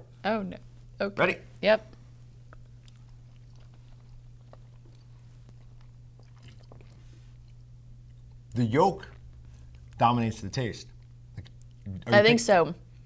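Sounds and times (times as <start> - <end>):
steady low hum: 0.0 - 13.0
people chewing: 1.9 - 10.0, 10.8 - 12.1
soft mouth clicks: 11.0 - 12.0.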